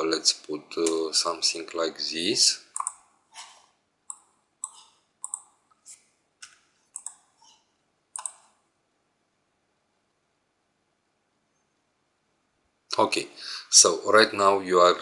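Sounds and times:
mouse and keyboard clicks: 0:02.8 - 0:05.6, 0:06.4 - 0:07.3, 0:08.2 - 0:08.6.

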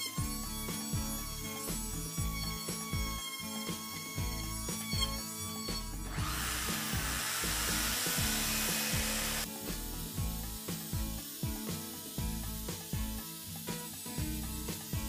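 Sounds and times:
music with steady beat: 0:00.0 - 0:05.2, 0:05.8 - 0:15.0
power tool running: 0:00.0 - 0:15.0.

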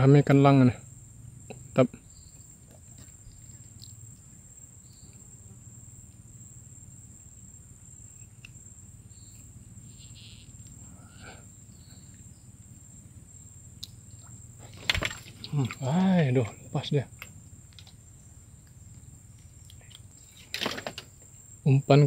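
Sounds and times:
faint chirps: 0:00.0 - 0:14.8
insects droning: 0:00.0 - 0:22.0.

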